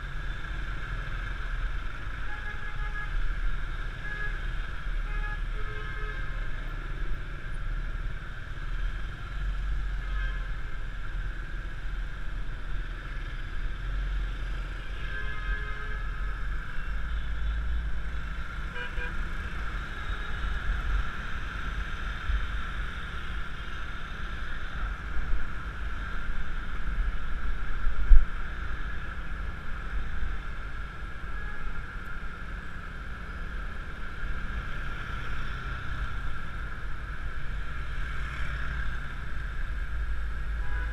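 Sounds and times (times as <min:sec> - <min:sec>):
road and engine noise: 0:00.0 - 0:40.9.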